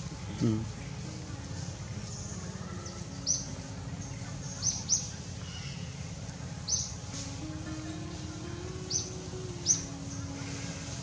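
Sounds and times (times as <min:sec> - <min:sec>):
high-pitched bird chirps: 0:08.8 - 0:10.9.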